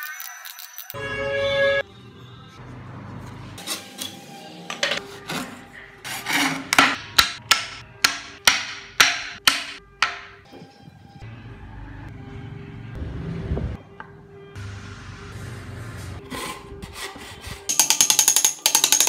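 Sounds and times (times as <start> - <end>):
hand saw cutting wood: 5.0 - 7.0.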